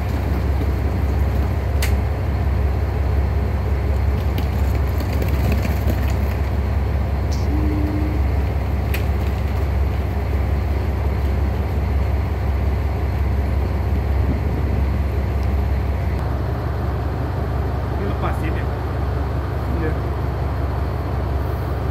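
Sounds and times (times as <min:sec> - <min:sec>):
diesel railcars idling: 0:00.0 - 0:21.9
faint short tone: 0:07.4 - 0:08.2.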